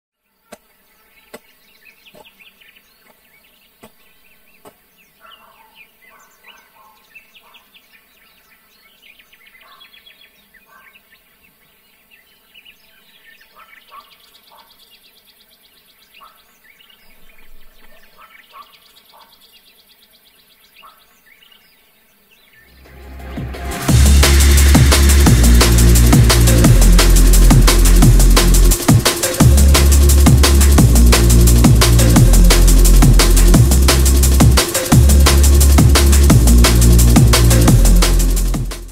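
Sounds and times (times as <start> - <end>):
birds chirping: 0.5 - 12.1.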